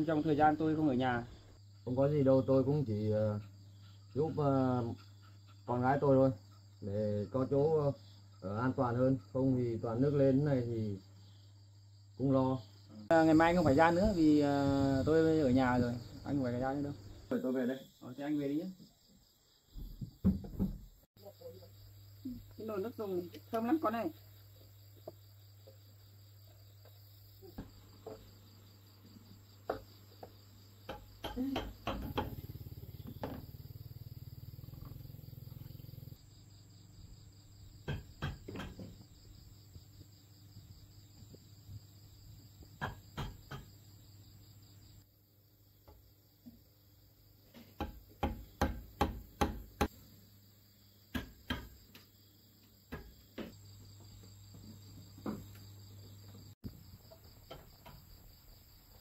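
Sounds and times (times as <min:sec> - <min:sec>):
crickets chirring: 0:00.0 - 0:59.0
sharp knocks and clicks: 0:29.6 - 0:33.5, 0:37.8 - 0:39.1, 0:42.7 - 0:43.8, 0:47.5 - 0:50.0, 0:51.1 - 0:53.6.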